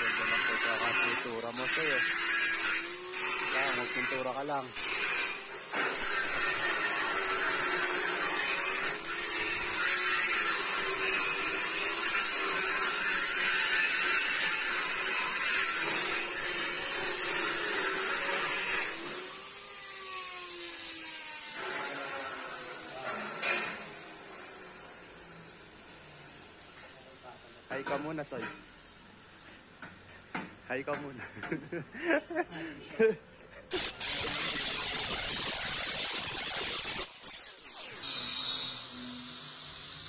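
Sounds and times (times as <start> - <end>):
power tool motor whining: 33.7 - 39.1.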